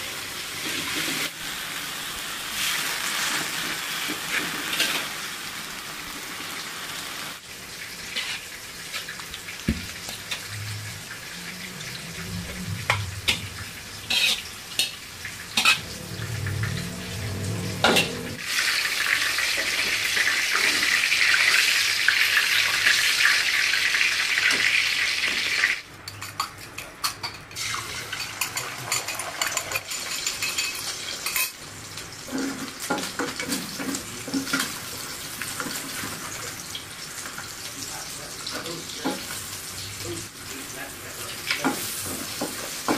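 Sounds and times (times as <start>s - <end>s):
egg frying in a wok: 0.0s - 11.6s, 18.4s - 42.9s
hot oil sizzling: 0.0s - 42.9s
spatula stirring in a wok: 8.1s - 9.1s
utensils knocking and scraping pans: 12.2s - 18.4s, 32.3s - 34.8s, 41.5s - 42.9s.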